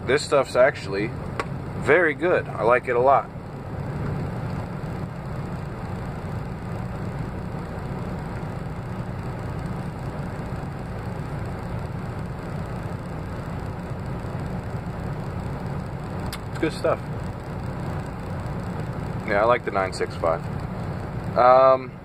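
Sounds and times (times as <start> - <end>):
truck engine idling: 0.0 - 22.0.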